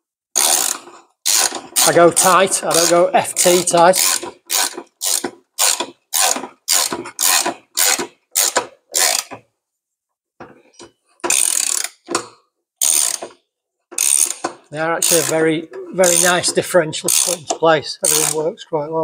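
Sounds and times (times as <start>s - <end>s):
ratchet spanner clicking: 0.4s - 1.9s, 2.7s - 9.4s, 11.2s - 12.2s, 12.8s - 13.4s, 14.0s - 15.4s, 16.0s - 16.4s, 17.1s - 18.5s.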